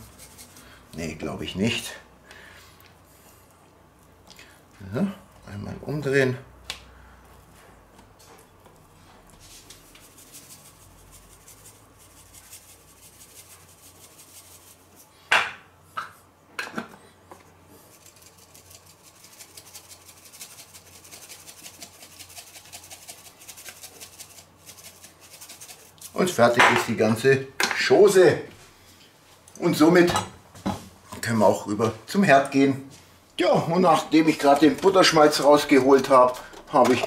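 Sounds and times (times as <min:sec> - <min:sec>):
spice shaker rattling: 0:00.0 - 0:00.8, 0:09.8 - 0:15.1, 0:17.8 - 0:26.6.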